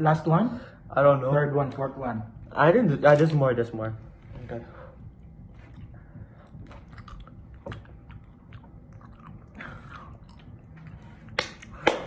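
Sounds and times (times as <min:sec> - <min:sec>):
wet chewing smacks: 0:06.6 - 0:11.7.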